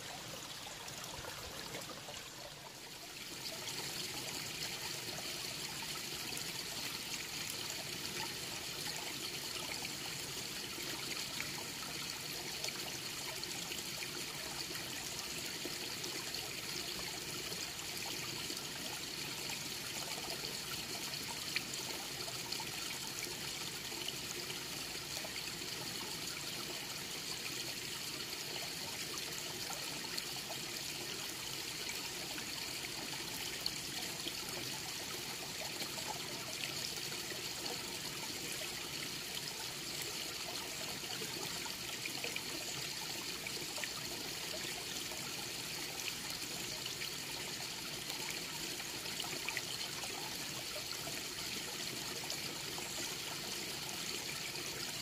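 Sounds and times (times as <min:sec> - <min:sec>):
stream babbling over rocks: 0:00.0 - 0:08.6.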